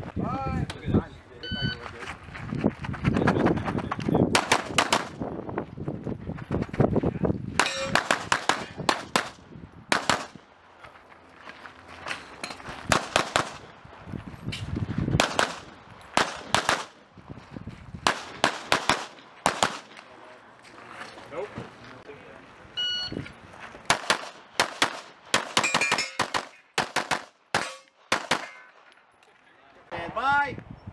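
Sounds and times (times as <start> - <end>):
pistol shots: 4.3 - 5.2, 7.6 - 10.4, 12.9 - 13.6, 15.2 - 17.0, 18.0 - 20.0, 23.9 - 28.7
short ringing tone: 22.8 - 23.2.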